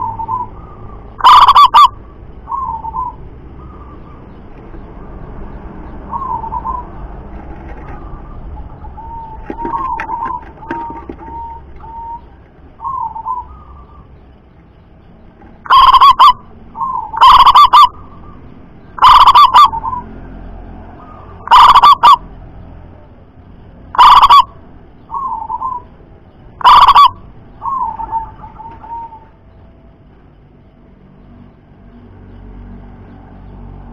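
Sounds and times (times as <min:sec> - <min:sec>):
loud dove notes: 0:00.0 - 0:04.0, 0:15.7 - 0:18.0, 0:19.0 - 0:20.0, 0:21.4 - 0:22.2, 0:24.0 - 0:24.5, 0:26.6 - 0:29.3
dove cooing: 0:00.0 - 0:04.2, 0:06.1 - 0:14.1, 0:15.7 - 0:18.4, 0:19.0 - 0:20.1, 0:21.0 - 0:22.2, 0:24.0 - 0:24.5, 0:25.1 - 0:25.9, 0:26.6 - 0:29.4.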